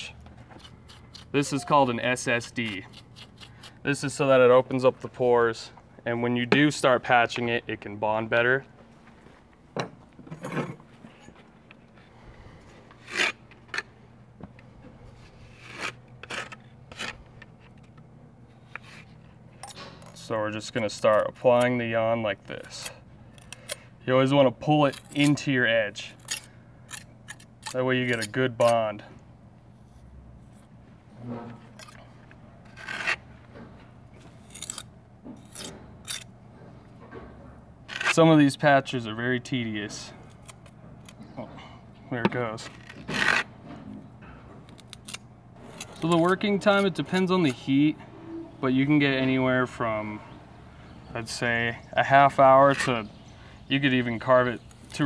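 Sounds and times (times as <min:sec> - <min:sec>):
trowel scraping mortar: 0:00.5 - 0:04.1, 0:15.2 - 0:17.8, 0:31.7 - 0:33.2.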